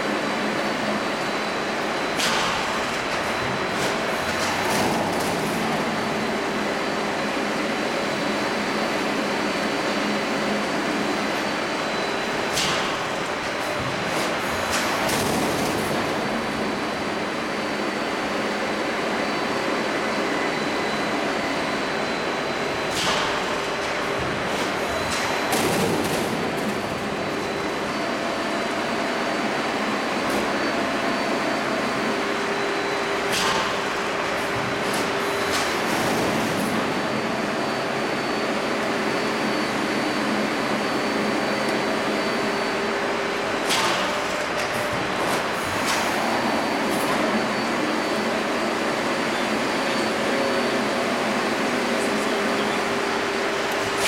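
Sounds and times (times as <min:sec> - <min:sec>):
machine hum and hiss: 0:00.0 - 0:54.0.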